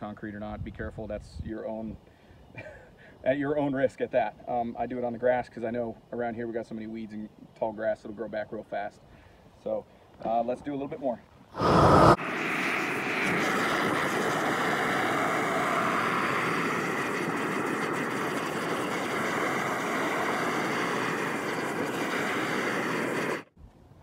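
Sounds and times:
gas torch flame rushing: 11.6 - 23.6.

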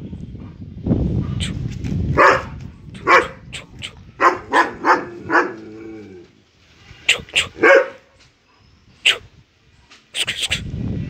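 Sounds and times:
dog barking: 2.2 - 3.4, 4.2 - 5.7, 7.5 - 8.1.

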